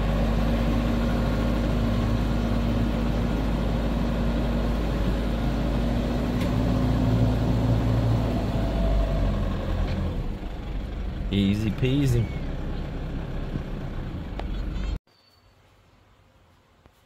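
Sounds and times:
truck engine droning under load: 0.0 - 15.0.

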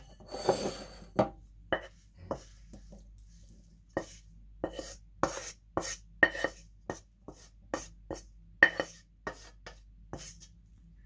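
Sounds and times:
wooden spatula scraping frying pan: 0.0 - 2.6.

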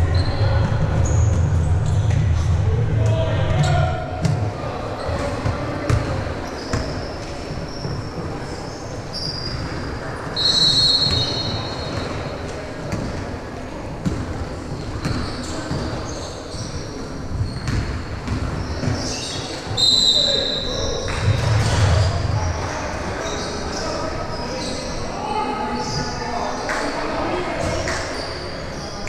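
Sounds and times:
shoe squeaks: 0.0 - 2.0, 5.0 - 12.2, 14.8 - 25.1.

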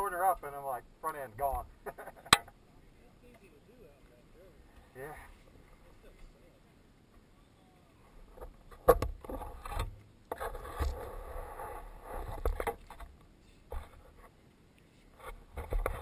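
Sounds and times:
rubbing and scraping knocks: 15.2 - 16.0.

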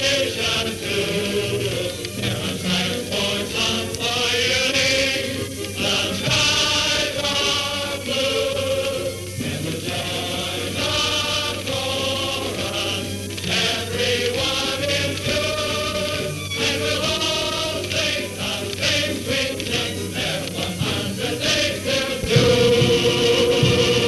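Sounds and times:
mixed choir singing sustained notes: 0.0 - 24.0.

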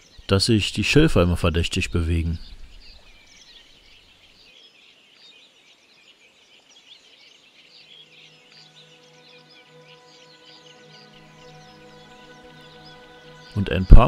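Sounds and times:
songbirds chirping: 0.0 - 14.0
soft music with held notes: 5.1 - 14.0.

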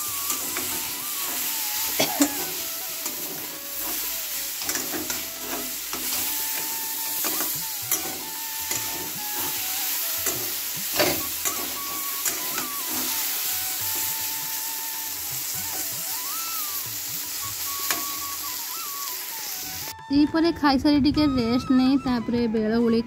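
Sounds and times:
metal spatula scraping a pan: 0.0 - 14.2
vegetables sizzling in oil: 0.0 - 20.0.

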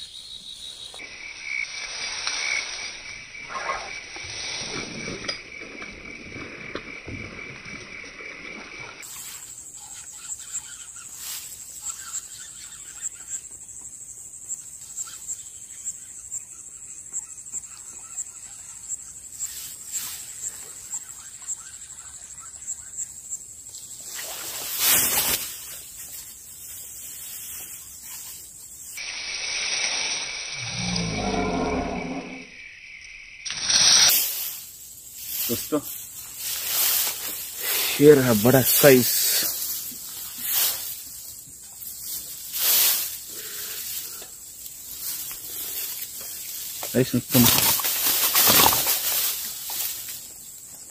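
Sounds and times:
rustling in tall grass: 1.0 - 3.2, 4.2 - 13.1, 19.3 - 21.3, 23.7 - 30.5, 33.6 - 50.9.

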